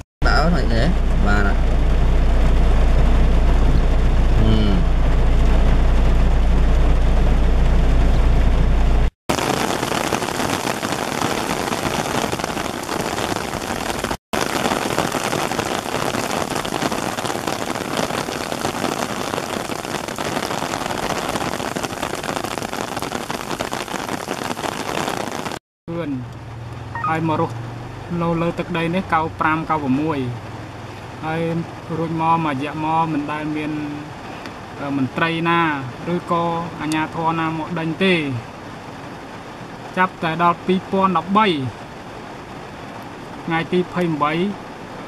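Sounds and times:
deep steady rumble: 0.2s - 10.1s
heavy rain on grass and trees: 9.3s - 45.0s.

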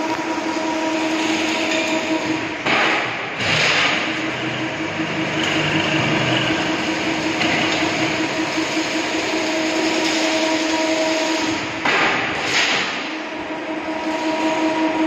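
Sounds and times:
constant mechanical hum: 0.0s - 15.0s
weaving machine running: 3.2s - 11.8s.

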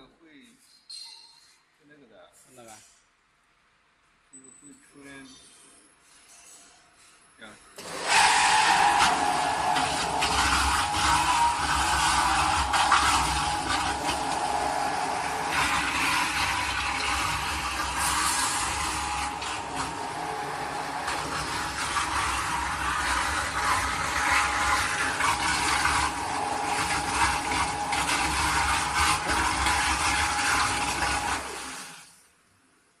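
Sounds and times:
mixing tank agitator whine: 7.8s - 32.5s.

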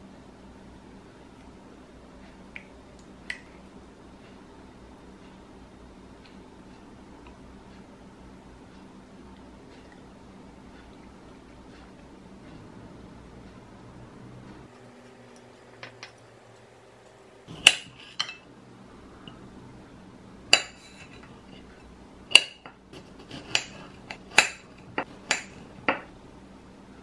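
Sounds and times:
knife clinking on ceramic plate: 17.6s - 18.5s.

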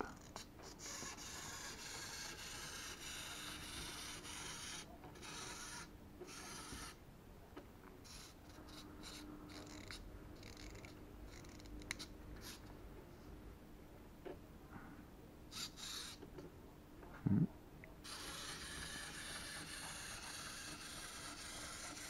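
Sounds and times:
clockwork toy motor whirring: 0.1s - 7.0s, 8.0s - 12.6s, 15.5s - 16.2s, 18.0s - 22.0s.

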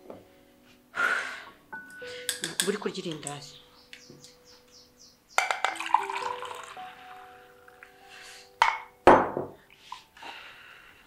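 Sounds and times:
soft background music: 0.0s - 11.0s
ceramic mugs clinking: 1.8s - 3.3s, 5.4s - 6.8s, 8.6s - 9.5s
mug knocking on table: 8.6s - 9.6s.

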